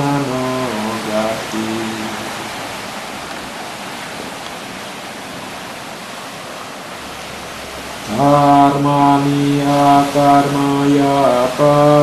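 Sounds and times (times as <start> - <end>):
steady rushing hiss: 0.0 - 12.0.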